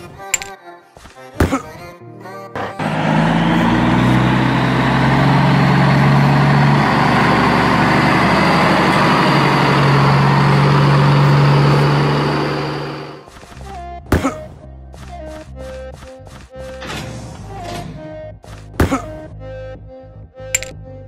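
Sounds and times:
truck engine deep hum: 0:02.7 - 0:13.3.

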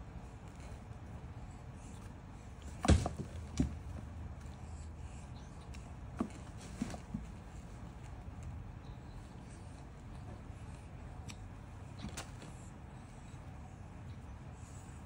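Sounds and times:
thumps and knocks on cardboard box: 0:02.6 - 0:04.0.

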